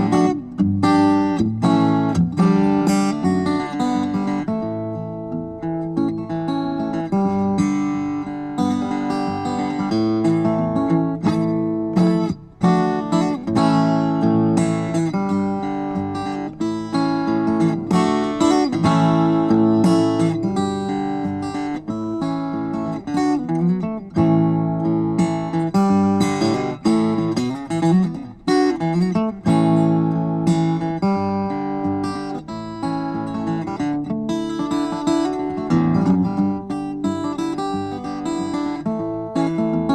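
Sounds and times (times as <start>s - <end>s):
acoustic guitar picking chords: 0.0s - 39.9s.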